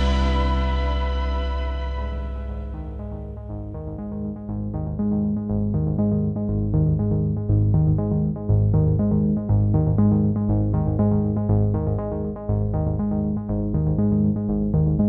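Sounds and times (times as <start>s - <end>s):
electronic synthesizer music with beat: 0.0s - 15.0s.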